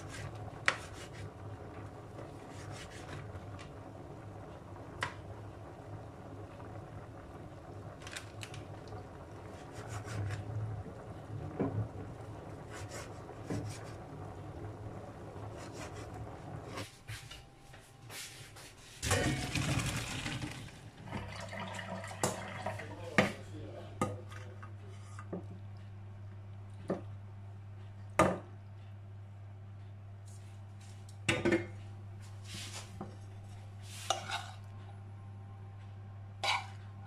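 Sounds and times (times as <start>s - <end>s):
water poured into colander: 19.0s - 23.2s.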